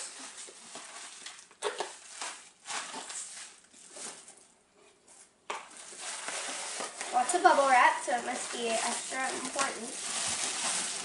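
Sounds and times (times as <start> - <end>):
bubble wrap crinkling: 0.0 - 4.5, 5.2 - 11.0.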